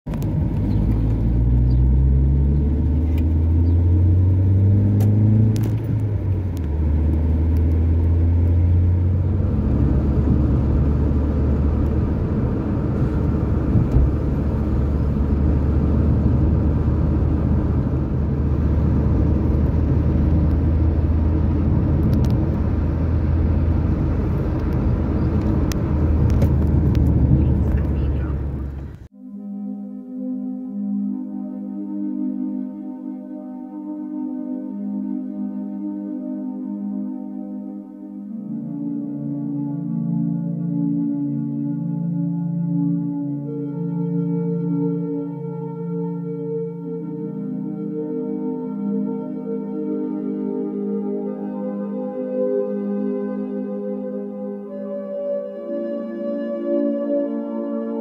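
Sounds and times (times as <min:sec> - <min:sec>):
car engine: 0:00.1 - 0:29.1
road rumble: 0:00.1 - 0:29.1.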